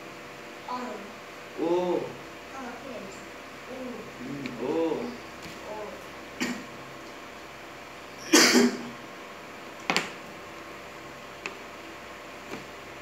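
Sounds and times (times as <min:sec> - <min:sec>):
person coughing: 0:06.4 - 0:06.7, 0:08.2 - 0:08.9.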